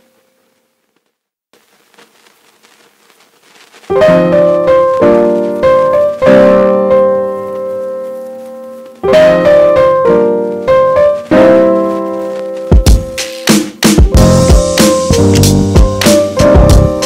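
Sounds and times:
piano chords: 3.9 - 17.0.

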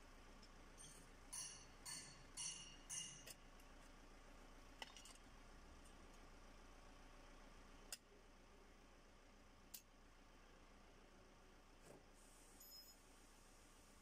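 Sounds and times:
faint metallic clinks: 0.8 - 3.4, 12.6 - 13.1.

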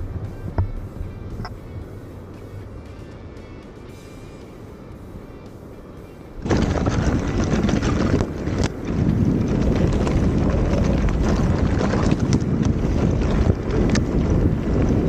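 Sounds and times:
wind buffeting microphone: 0.0 - 15.0
tyre rumble on stony trail: 6.4 - 15.0.

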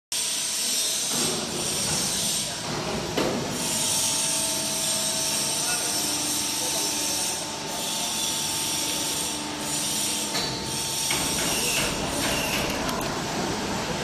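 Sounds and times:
rough mechanical noise: 0.2 - 14.0
chamfering machine running: 3.5 - 14.0.

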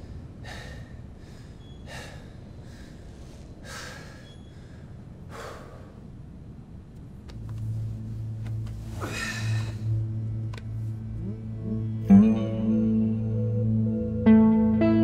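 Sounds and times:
man breathing heavily: 0.0 - 6.3, 8.8 - 10.2.

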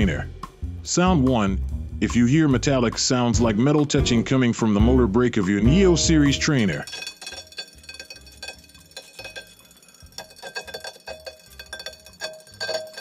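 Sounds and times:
metallic clinks from trainer: 6.6 - 13.0.

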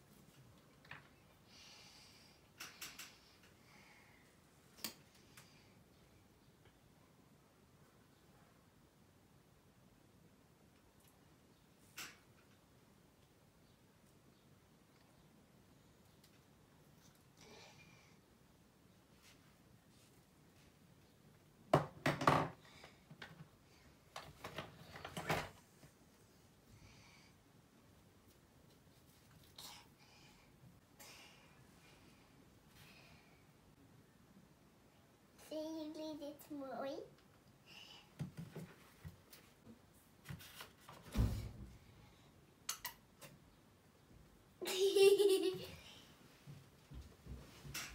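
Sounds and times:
thump: 41.1 - 41.8.

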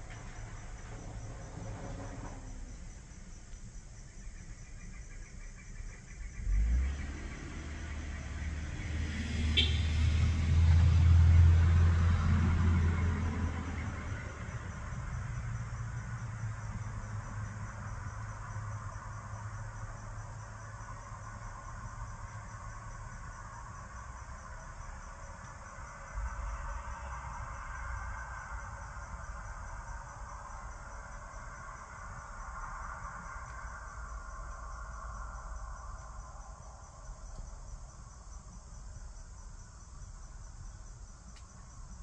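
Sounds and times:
crickets trilling: 0.0 - 42.0
motor vehicle passing: 6.4 - 23.4.

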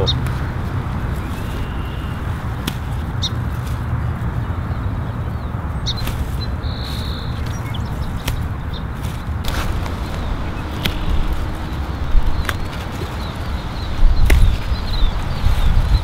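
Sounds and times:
low outdoor rumble: 0.0 - 16.0
bird chirps: 1.1 - 2.4, 4.5 - 16.0.

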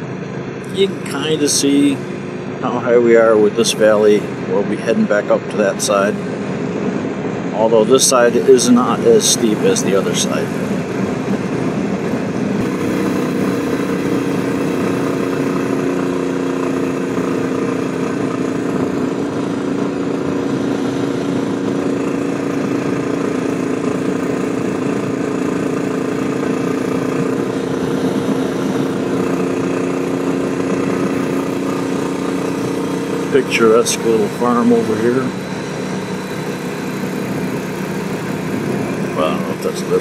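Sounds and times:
motorcycle engine running: 0.0 - 40.0.

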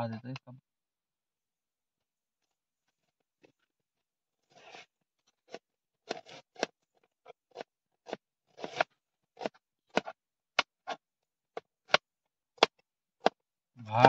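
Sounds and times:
knife scraping cutting board: 4.5 - 4.9, 5.5 - 6.7, 7.5 - 10.2
knife chopping onion on board: 7.5 - 11.0.

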